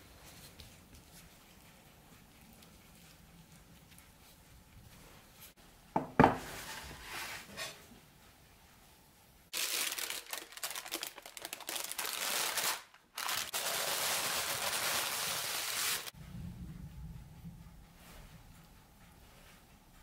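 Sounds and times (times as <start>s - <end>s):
parchment paper crinkling: 9.5s - 16.1s.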